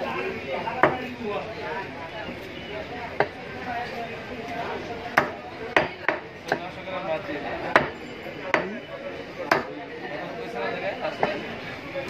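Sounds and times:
cleaver chopping meat on wood: 0:00.8 - 0:01.1, 0:03.2 - 0:03.4, 0:05.1 - 0:06.8, 0:07.7 - 0:08.8, 0:09.4 - 0:09.8.

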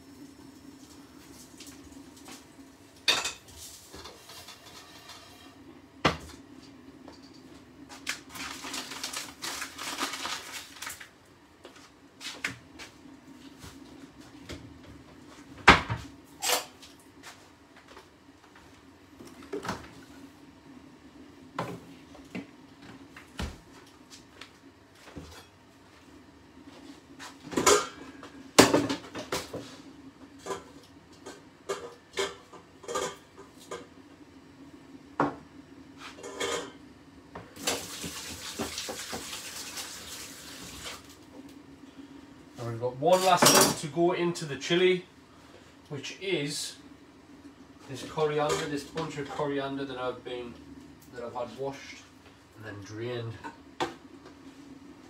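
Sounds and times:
pans and utensils clinking: 0:03.1 - 0:05.6, 0:36.1 - 0:36.8
steady low hum: 0:41.1 - 0:55.0.

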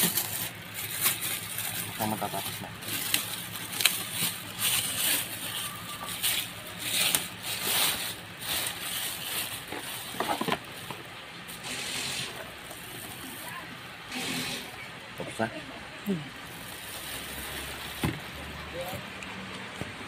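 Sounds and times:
plastic wrapping crinkling: 0:00.0 - 0:13.7, 0:16.4 - 0:18.5.

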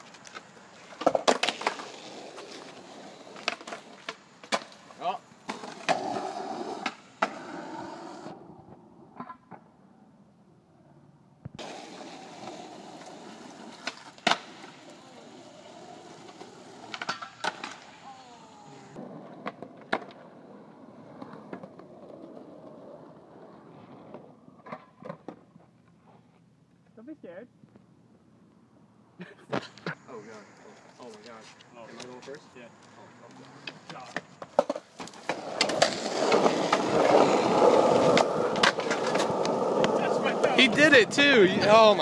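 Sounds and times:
skateboard clacking on ground: 0:00.0 - 0:07.5, 0:09.1 - 0:09.7, 0:11.5 - 0:18.3, 0:18.9 - 0:22.9, 0:24.0 - 0:25.8, 0:33.3 - 0:42.0
skateboard wheels on concrete: 0:00.0 - 0:26.8, 0:29.5 - 0:42.0.

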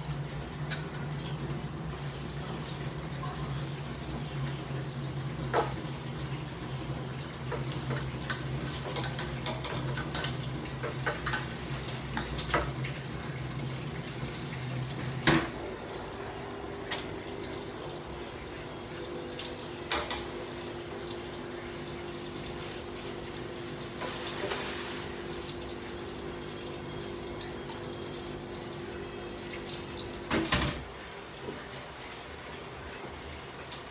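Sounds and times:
electrical hum from stove: 0:00.0 - 0:33.9.

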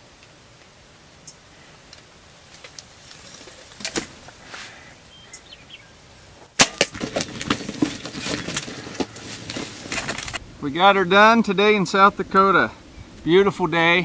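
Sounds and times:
bird wings beating in stubble: 0:02.5 - 0:04.8, 0:06.6 - 0:10.4.

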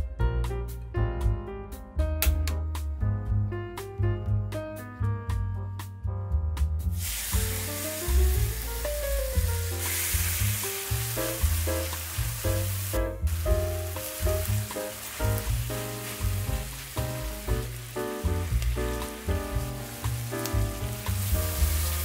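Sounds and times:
background music: 0:00.0 - 0:22.0
meat sizzling in hot oil: 0:07.0 - 0:22.0.

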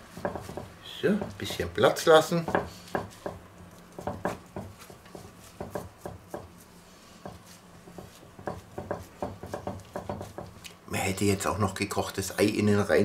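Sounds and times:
hands patting minced meat: 0:00.0 - 0:01.8, 0:02.4 - 0:10.8.

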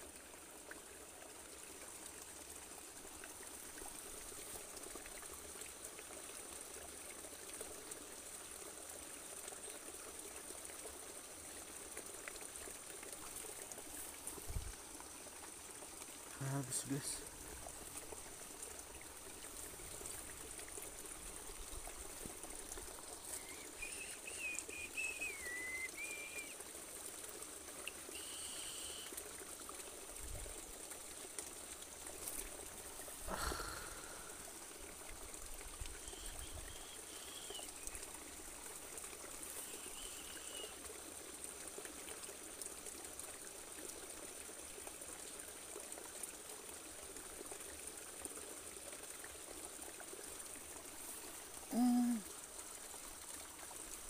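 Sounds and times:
faint trickling water: 0:00.0 - 0:54.0
bird chirps: 0:23.4 - 0:26.5.

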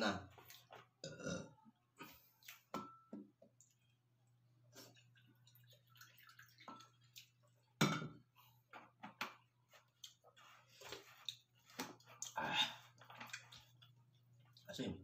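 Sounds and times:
wet chewing and lip smacks: 0:02.2 - 0:02.7, 0:07.1 - 0:07.4, 0:09.9 - 0:12.4.

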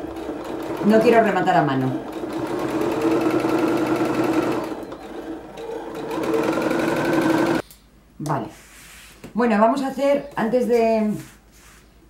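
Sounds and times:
sewing machine stitching: 0:00.0 - 0:07.6.

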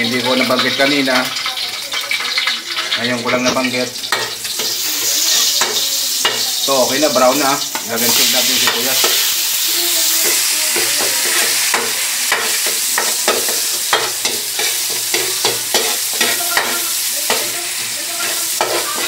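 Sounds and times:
garlic sizzling in hot oil: 0:00.0 - 0:19.0
utensil scraping a pan: 0:10.0 - 0:19.0.

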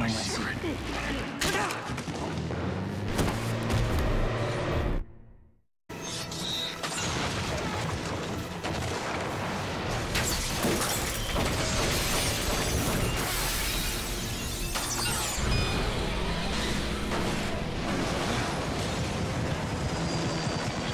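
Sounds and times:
gunshots: 0:06.7 - 0:14.0.

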